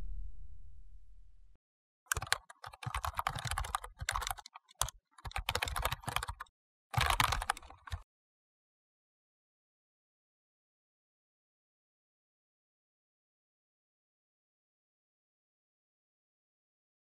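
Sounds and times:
keyboard key clicks: 2.1 - 8.0.

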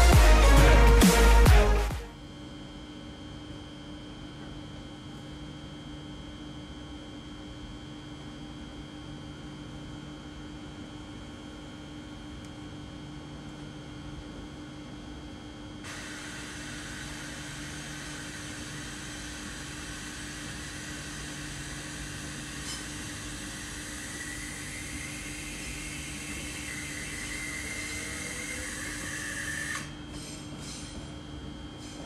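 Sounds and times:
train traction whine rising: 0.0 - 2.1, 15.9 - 31.0.

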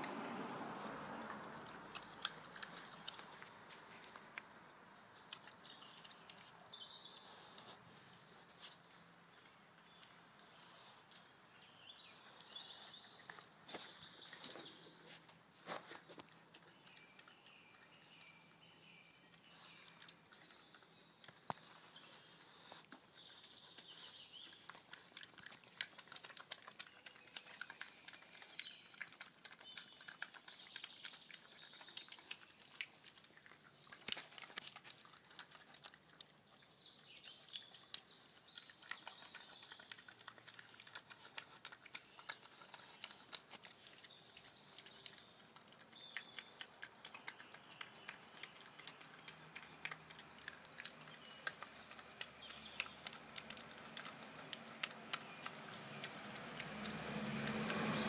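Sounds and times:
animal chewing with crunching clicks: 0.0 - 58.0
small birds chirping: 0.0 - 58.0.

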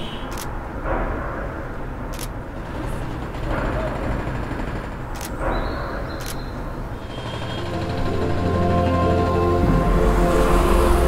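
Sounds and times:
low traffic rumble: 0.0 - 11.0
camera shutter clicks: 0.3 - 0.5, 2.1 - 2.4, 5.2 - 5.4, 6.2 - 6.5
cars passing: 6.2 - 11.0.

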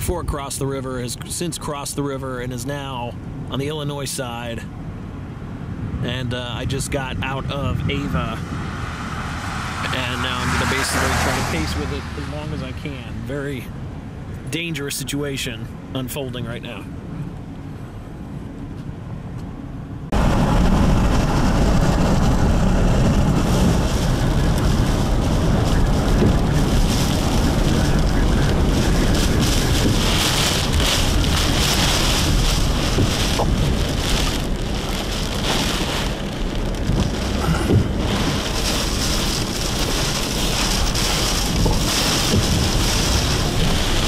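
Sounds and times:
road noise: 0.0 - 44.0
rain hissing: 7.9 - 13.4, 20.1 - 44.0
wind buffeting microphone: 20.1 - 44.0.

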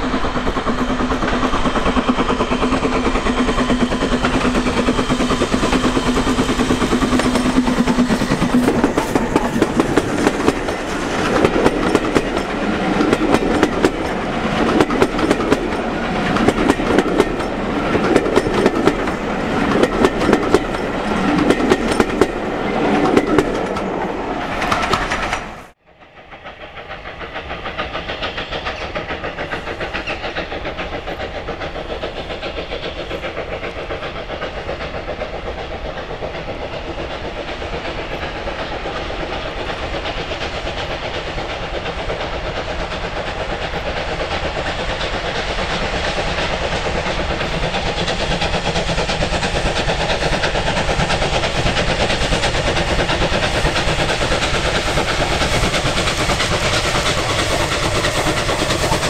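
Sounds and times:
pulsing train rumble: 0.0 - 59.0
train wheels clattering on rails: 0.0 - 59.0.

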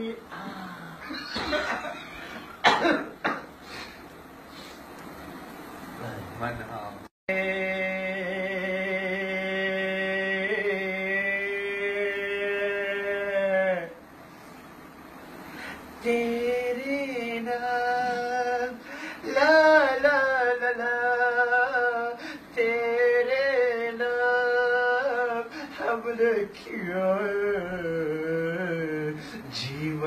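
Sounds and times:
man singing unaccompanied: 7.3 - 14.0, 16.0 - 30.0.

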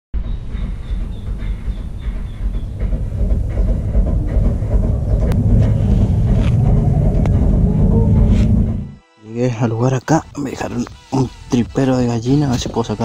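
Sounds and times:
low steady rumbling: 1.8 - 9.0.

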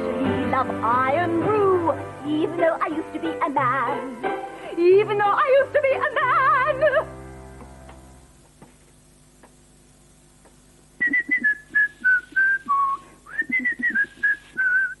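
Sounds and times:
person whistling a tune: 11.0 - 15.0.

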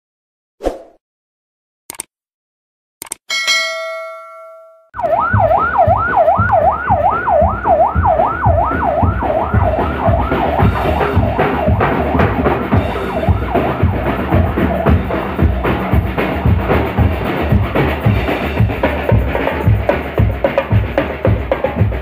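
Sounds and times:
click: 1.9 - 2.1, 3.0 - 3.2
short bell-like chime: 3.3 - 4.9
siren wailing up and down: 5.0 - 14.6
drum band steady beat: 5.3 - 22.0.

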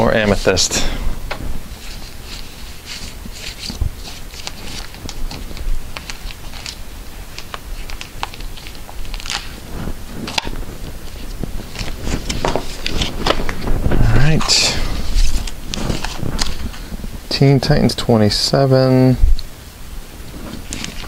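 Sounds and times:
plastic bags crinkling: 1.8 - 14.0.

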